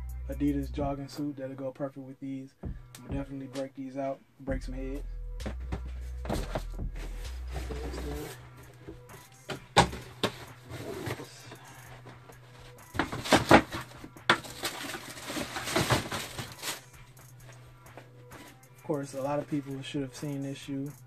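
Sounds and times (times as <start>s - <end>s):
shoe boxes rustling and knocking: 5.4s - 16.9s, 17.5s - 19.6s.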